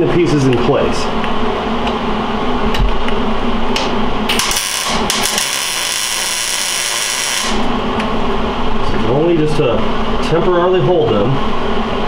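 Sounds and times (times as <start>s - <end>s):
welding arc buzzing: 3.8s - 8.0s.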